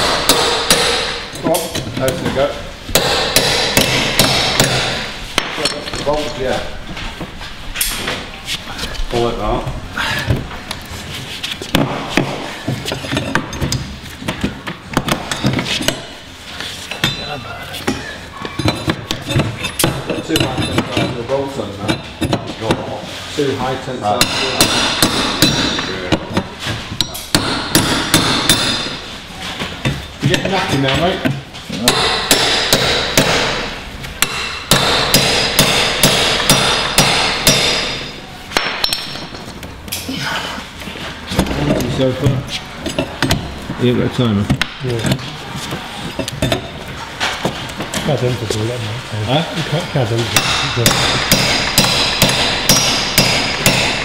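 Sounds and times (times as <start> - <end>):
hammer striking steel bar: 0.0 - 1.8, 2.9 - 5.8, 24.2 - 26.4, 27.0 - 29.0, 31.8 - 39.4, 50.4 - 54.0.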